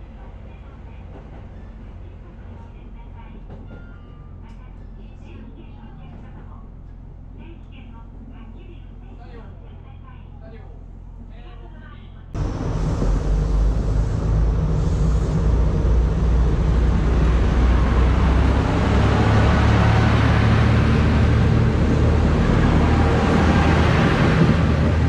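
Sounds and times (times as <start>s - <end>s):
diesel engine low drone: 12.1s - 25.0s.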